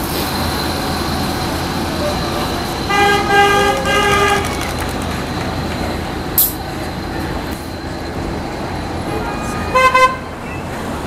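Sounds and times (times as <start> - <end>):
street traffic noise: 0.0 - 11.0
car horn tooting: 2.9 - 4.6, 9.3 - 10.6.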